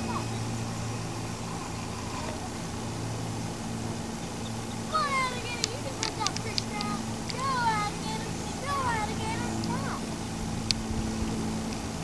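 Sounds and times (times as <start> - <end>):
low mechanical hum: 0.0 - 12.0
faint bird chirps: 4.1 - 5.4.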